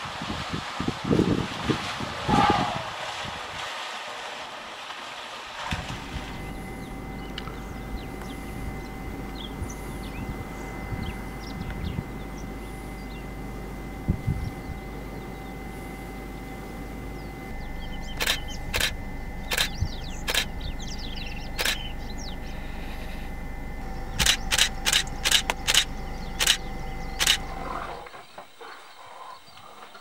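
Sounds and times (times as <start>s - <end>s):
low hum: 5.4s - 30.0s
faint bird chirps: 6.2s - 30.0s
camera shutter clicking: 18.2s - 20.5s, 21.6s - 21.8s, 24.2s - 26.6s, 27.2s - 27.5s.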